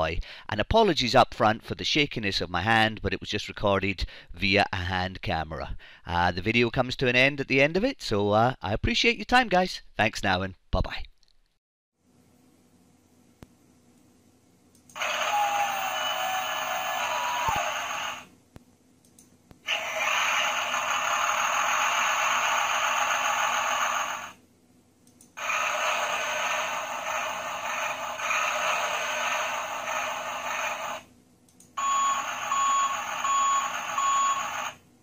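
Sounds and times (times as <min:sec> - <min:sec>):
toy truck machine sound effects: 0:19.7 - 0:24.4, 0:25.4 - 0:31.0, 0:31.8 - 0:34.8.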